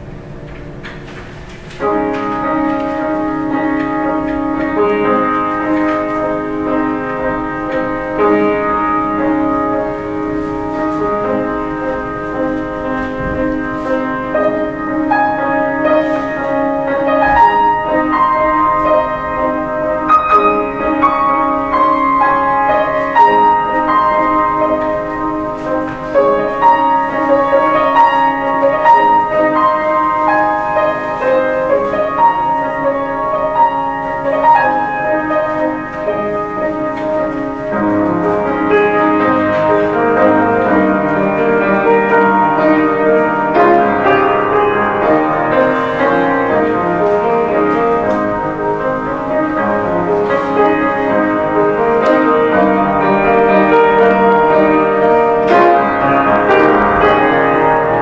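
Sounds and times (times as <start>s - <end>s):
solo grand piano: 0.0s - 58.0s.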